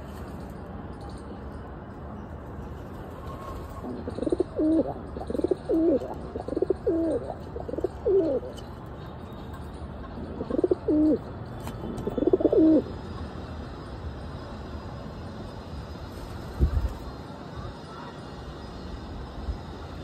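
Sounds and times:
pigeons cooing: 3.8s - 8.6s, 10.2s - 11.2s, 12.0s - 12.9s.

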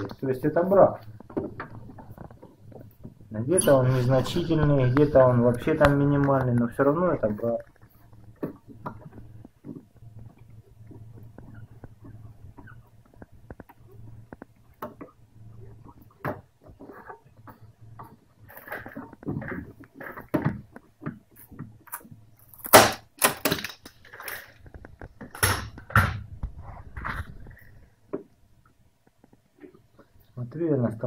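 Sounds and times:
glue tabs cracking off: 18.6s - 26.1s.

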